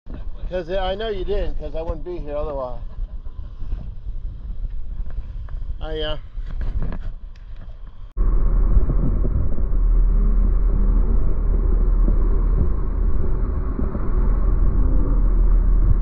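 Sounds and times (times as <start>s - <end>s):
outboard motors rumbling: 0.1s - 16.0s
hull rushing through water: 8.2s - 16.0s.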